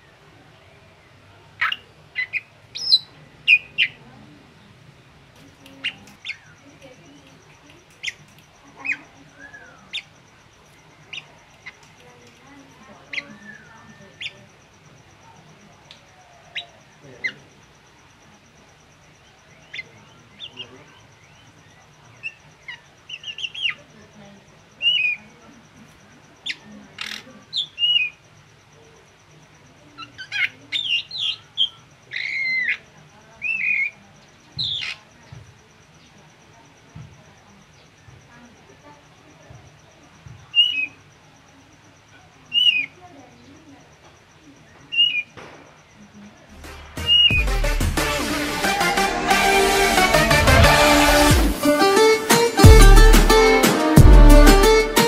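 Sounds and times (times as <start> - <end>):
bird singing whistled notes: 1.6 - 4.0, 8.8 - 10.1, 13.0 - 14.5, 44.9 - 45.4, 47.0 - 47.5
bird chirping and whistling: 47.0 - 47.5.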